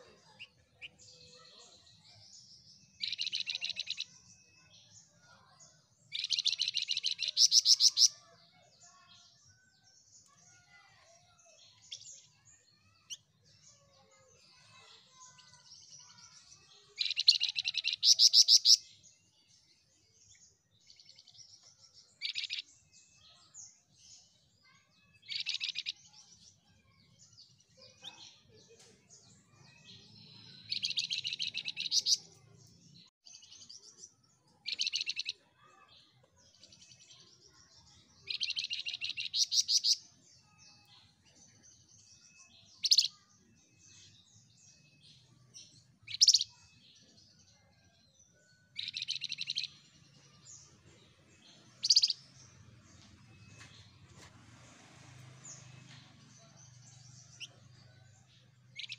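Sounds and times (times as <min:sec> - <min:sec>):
soft bird chirps: 0:00.0 - 0:58.9
songbird trilling: 0:06.1 - 0:08.2, 0:34.7 - 0:35.4, 0:46.1 - 0:46.6, 0:51.8 - 0:52.3.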